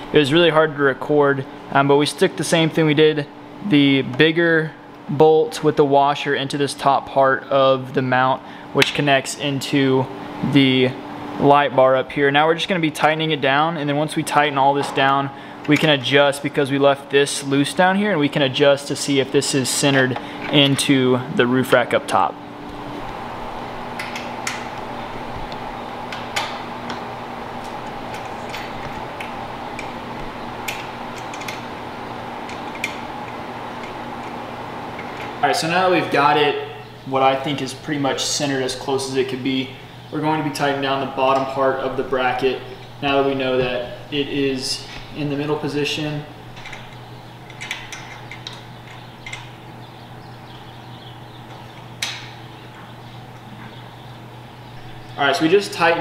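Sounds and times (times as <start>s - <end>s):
steady hum: 0.0s - 56.0s
small clicks and knocks: 46.6s - 49.5s.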